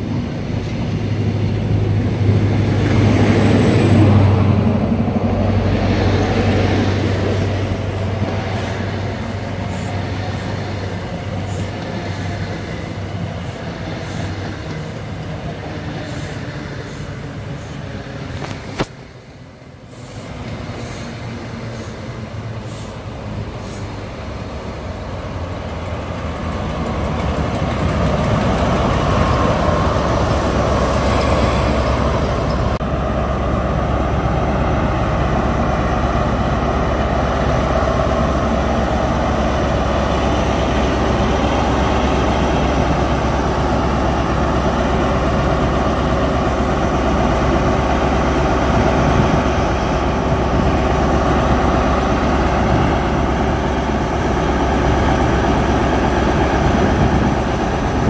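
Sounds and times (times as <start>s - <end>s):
diesel engine droning: 19.4s - 58.0s.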